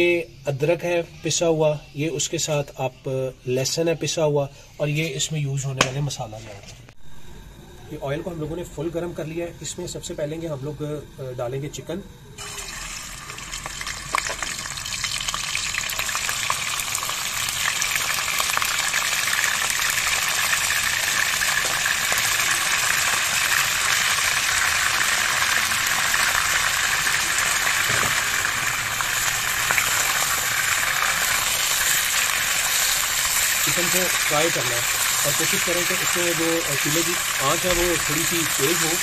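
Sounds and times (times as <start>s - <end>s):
chicken sizzling in hot oil: 12.3s - 39.0s.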